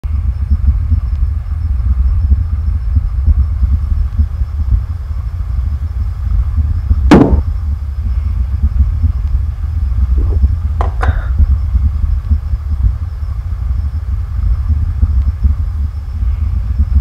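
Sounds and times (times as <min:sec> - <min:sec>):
steady low rumble: 0:00.0 - 0:17.0
sharp hit: 0:07.1 - 0:07.5.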